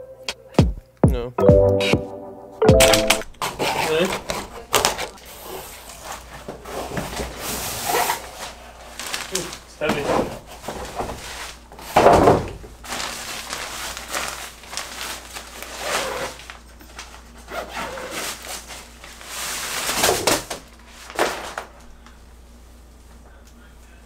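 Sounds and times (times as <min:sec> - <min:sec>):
nylon bag rustling and flapping: 0:07.9 - 0:09.6, 0:12.8 - 0:17.1, 0:17.7 - 0:21.7.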